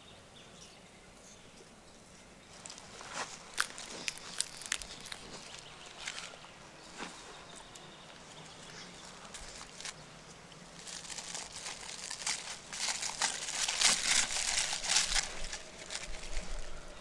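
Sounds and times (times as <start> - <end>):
plastic crinkling: 2.6 - 6.4, 10.7 - 16.8.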